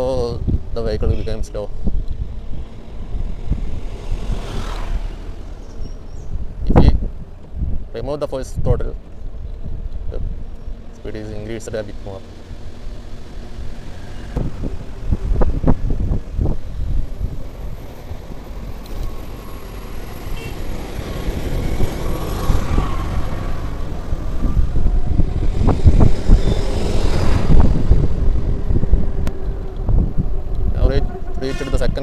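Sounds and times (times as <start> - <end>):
wind buffeting microphone: 0.0 - 11.2, 12.4 - 32.0.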